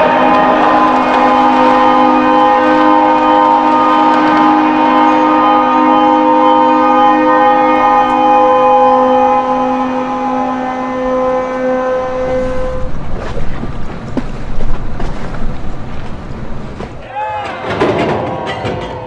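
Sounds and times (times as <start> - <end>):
ship horns chord: 0.0 - 17.1
low rumble of water and wind: 9.2 - 17.0.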